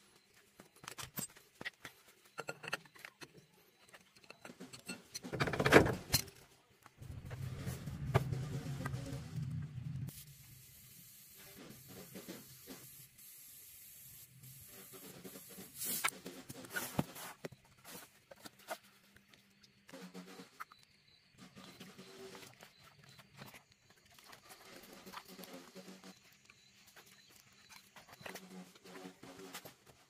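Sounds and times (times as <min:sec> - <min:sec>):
knocks and handling noise: 0:00.2 - 0:09.0
air hissing from tyre valve: 0:10.1 - 0:16.1.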